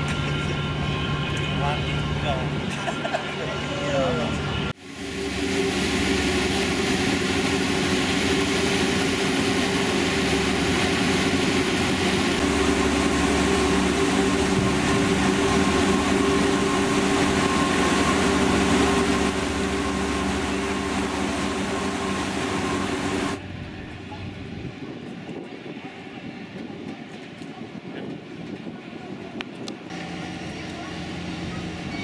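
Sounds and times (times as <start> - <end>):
ferry diesel engines droning: 0.0 - 25.0, 29.9 - 32.0
propeller wash churning: 4.8 - 23.6.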